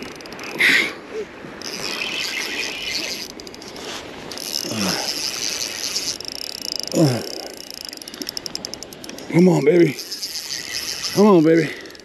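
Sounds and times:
fishing reel buzzing and clicking: 0.0s - 0.8s, 1.5s - 12.0s.

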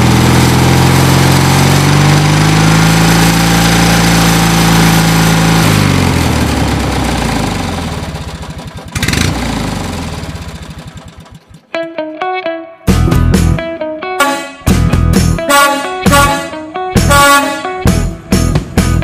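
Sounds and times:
truck engine chugging: 4.1s - 11.7s.

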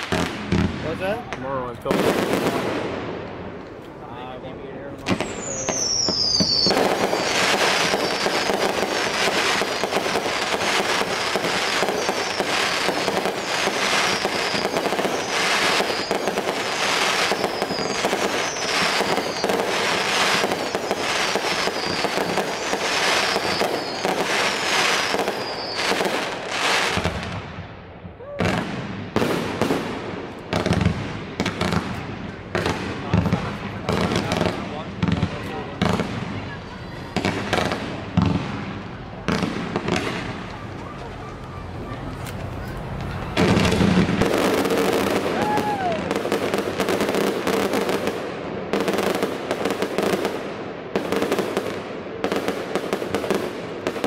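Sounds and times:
firework bangs: 0.0s - 4.0s, 4.9s - 54.0s
fireworks crackling: 0.0s - 54.0s
faint high whistle: 5.2s - 8.5s, 11.8s - 26.0s.

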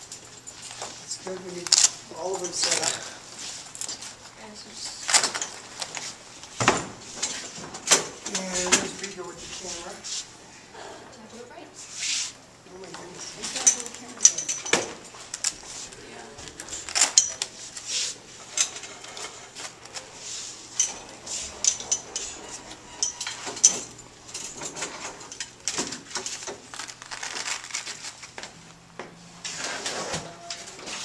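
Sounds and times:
metal light stands clinking: 13.2s - 15.9s, 16.8s - 17.8s, 20.7s - 26.9s.

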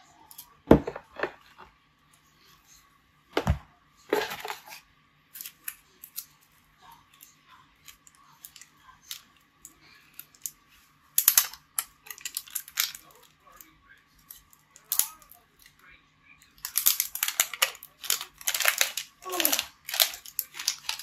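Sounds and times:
plastic crinkling rustle: 11.2s - 13.3s, 16.6s - 21.0s.

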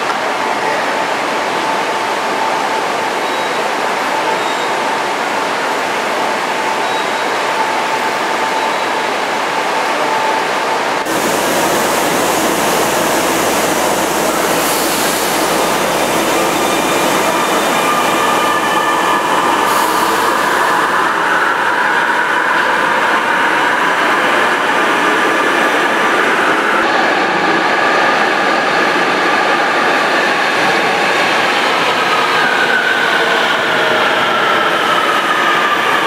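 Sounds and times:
train rumble and hiss: 9.1s - 36.0s
station hum: 11.1s - 19.6s.

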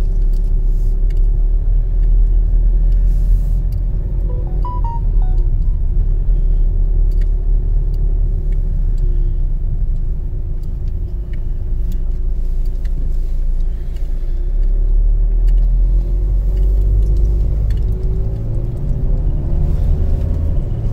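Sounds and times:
light ticks: 0.0s - 3.9s, 7.1s - 19.3s
car engine and road rumble: 0.0s - 20.9s.

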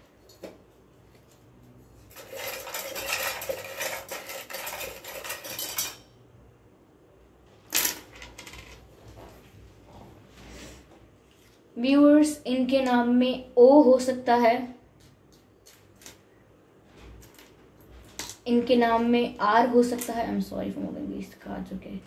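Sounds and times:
plastic letters rattling: 2.0s - 6.0s.

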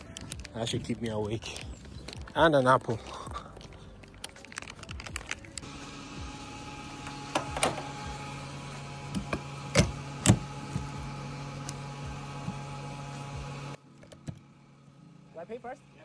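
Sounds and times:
fuel pump humming: 5.0s - 15.9s.

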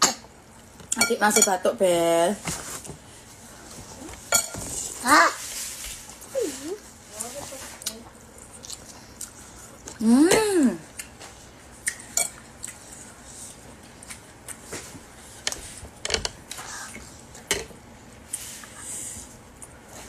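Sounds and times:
spoons clinking against bowls: 1.0s - 1.6s, 4.3s - 4.6s
person crying out: 10.0s - 10.8s.

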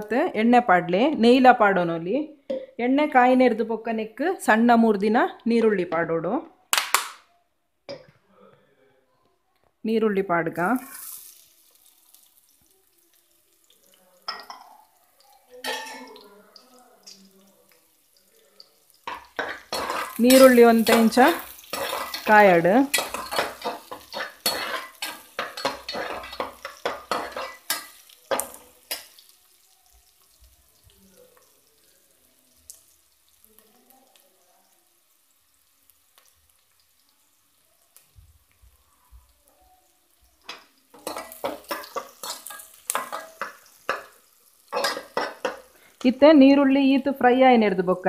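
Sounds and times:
onions sizzling in oil: 9.9s - 48.0s
spoon scraping a steel pot: 22.9s - 28.6s.

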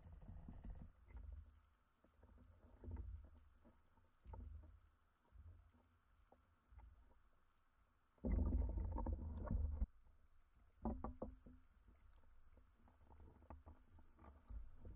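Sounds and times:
muffled water sloshing and bubbling: 0.2s - 14.9s.

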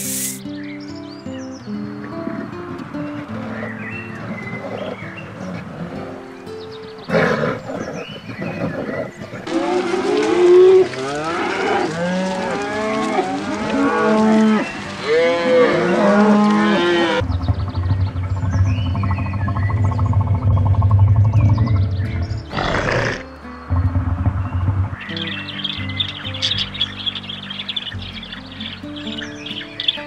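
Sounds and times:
soft music with held notes: 0.0s - 17.2s, 21.7s - 30.0s
loud rough animal call: 8.6s - 17.2s, 22.5s - 23.3s
cattle mooing: 9.5s - 17.2s.

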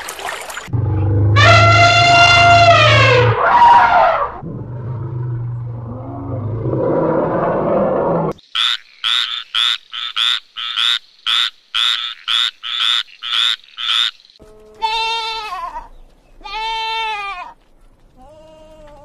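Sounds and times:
frog croaking: 8.3s - 14.4s
goats bleating: 14.7s - 17.6s.

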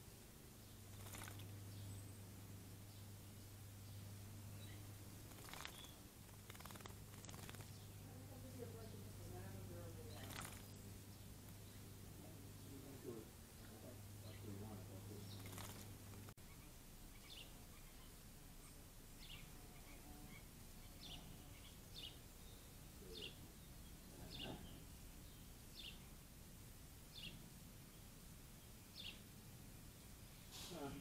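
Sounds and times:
faint short bird chirps: 4.6s - 7.8s.

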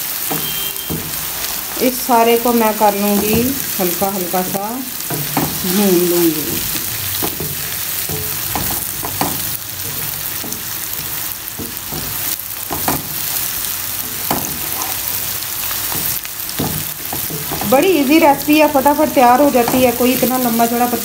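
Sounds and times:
vegetables sizzling in a frying pan: 0.0s - 21.0s
wooden spatula scraping a pan: 6.6s - 17.8s.

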